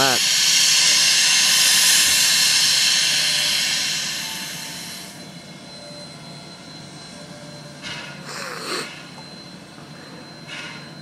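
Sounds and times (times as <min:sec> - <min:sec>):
steam locomotive hissing: 0:00.0 - 0:05.8, 0:07.3 - 0:09.2.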